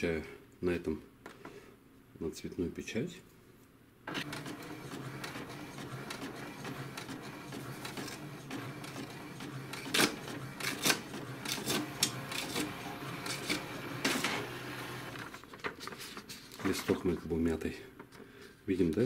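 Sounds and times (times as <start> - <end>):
sharp printer clicks: 4.1 - 15.4
printer whirring: 4.1 - 17.4.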